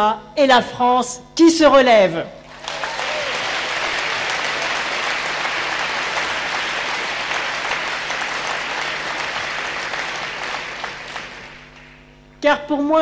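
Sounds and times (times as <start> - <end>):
audience applauding: 2.5 - 12.1.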